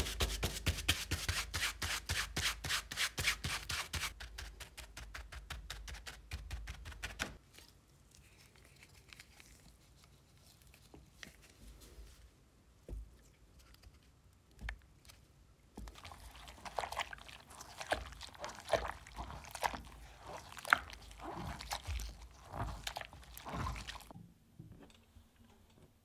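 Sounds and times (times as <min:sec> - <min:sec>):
wet fabric squishing in water: 0:15.7 - 0:24.2.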